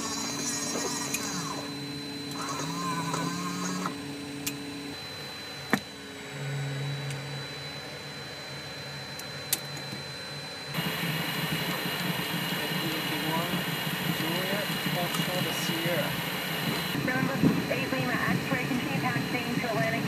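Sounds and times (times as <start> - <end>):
electric motor whirring: 0.0 - 8.0
high-pitched whine: 0.0 - 20.0
low hum: 0.0 - 20.0.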